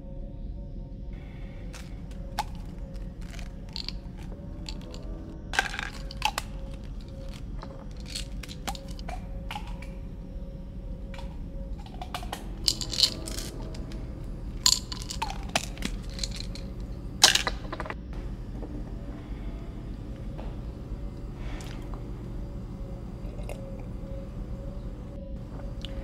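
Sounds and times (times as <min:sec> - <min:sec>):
plastic pill bottles clicking: 0:01.7 - 0:10.1, 0:11.0 - 0:18.6.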